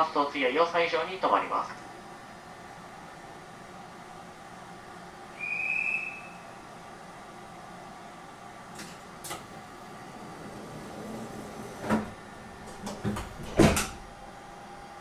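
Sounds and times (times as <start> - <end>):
steady electrical hum: 0.0 - 15.0
knocks and thumps in train car: 11.8 - 14.1.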